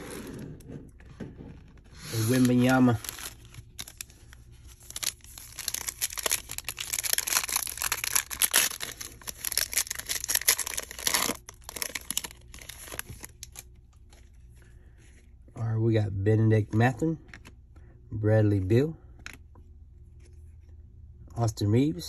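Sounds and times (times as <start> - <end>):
foil wrapper crinkling: 2.0 - 13.7.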